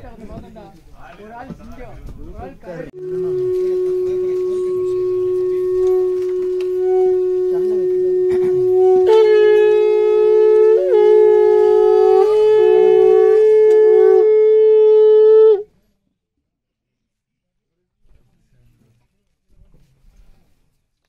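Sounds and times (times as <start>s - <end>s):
conch shell higher note: 3.0s - 15.7s
conch shell low note: 3.0s - 15.7s.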